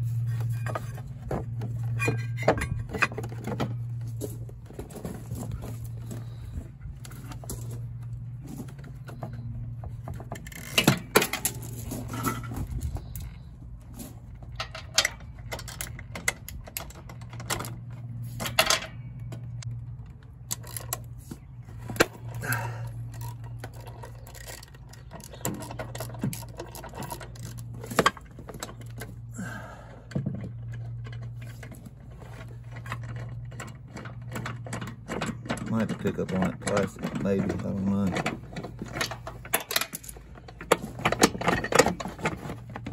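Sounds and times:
steady low hum: 0:00.0 - 0:42.9
hand tools clinking on metal: 0:30.6 - 0:42.9.

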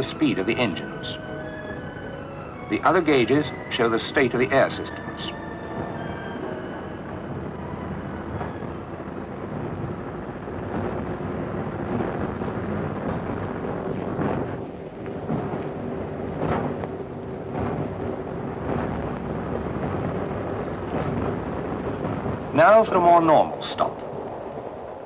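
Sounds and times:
train engine rumble: 0:00.0 - 0:25.0
wheels on rail: 0:00.0 - 0:25.0.

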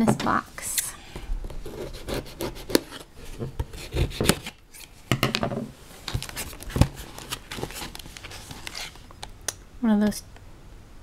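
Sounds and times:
cardboard rubbing and scraping: 0:06.0 - 0:09.1.

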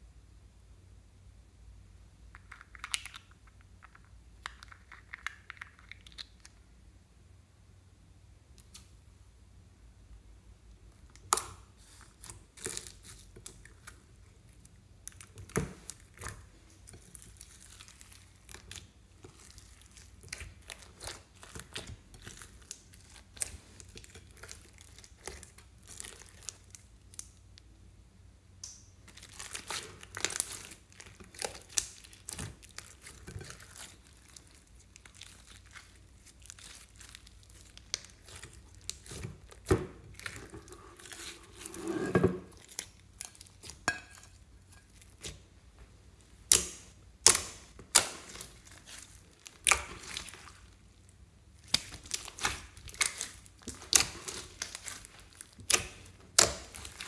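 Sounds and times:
crackles and squelches of slime: 0:02.1 - 0:07.0, 0:08.4 - 0:09.3, 0:10.1 - 0:27.9, 0:28.5 - 0:57.0
hands squeezing sticky slime: 0:02.3 - 0:06.6, 0:11.0 - 0:27.4, 0:29.0 - 0:41.8, 0:46.3 - 0:57.0.

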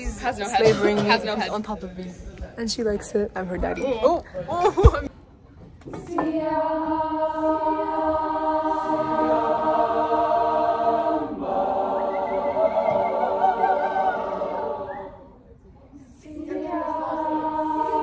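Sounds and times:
choir singing a cappella: 0:05.9 - 0:15.4, 0:16.0 - 0:18.0.

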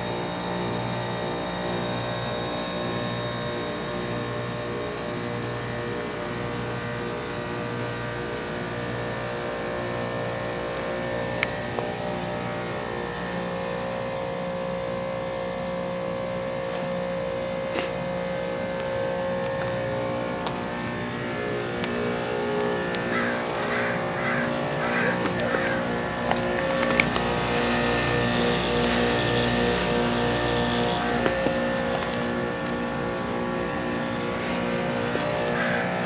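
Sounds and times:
compressor hum: 0:00.0 - 0:36.0.

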